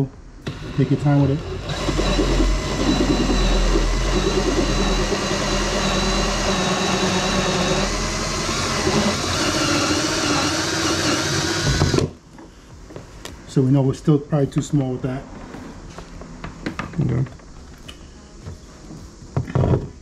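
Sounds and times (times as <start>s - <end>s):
cordless drill cutting plastic: 0.4s - 12.1s.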